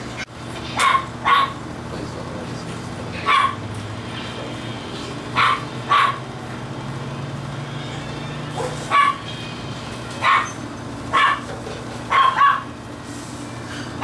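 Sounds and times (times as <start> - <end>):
puppies yipping: 5.4 - 6.3, 8.2 - 9.4, 10.1 - 11.5, 12.1 - 12.7.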